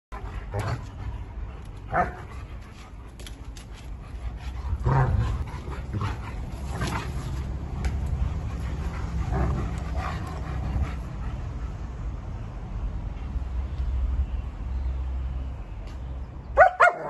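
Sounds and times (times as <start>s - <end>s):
dogs panting: 0.1s - 13.7s
dogs play-fighting vocalising: 0.2s - 11.8s.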